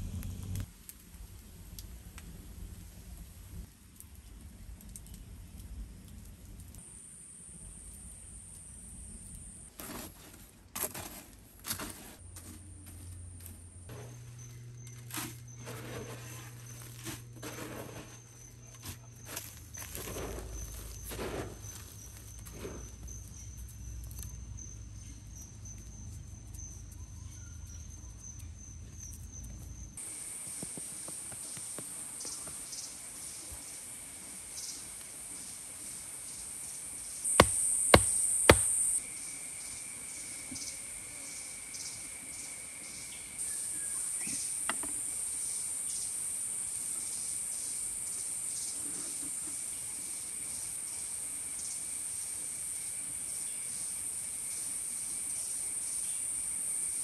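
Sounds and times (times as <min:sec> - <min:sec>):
insects chirring: 0:06.8 - 0:09.8, 0:12.8 - 0:57.0
sharp knocks: 0:37.4 - 0:38.8.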